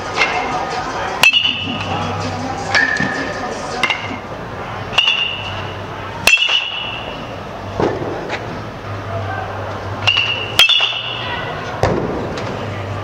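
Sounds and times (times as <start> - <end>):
metal bat striking ball: 1.2 - 1.9, 4.9 - 5.5, 6.2 - 7.0, 10.0 - 11.2.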